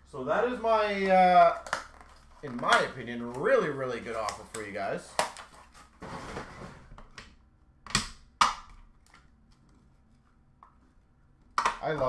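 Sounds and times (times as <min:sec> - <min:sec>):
plastic clicks and snaps: 0:11.5 - 0:12.0.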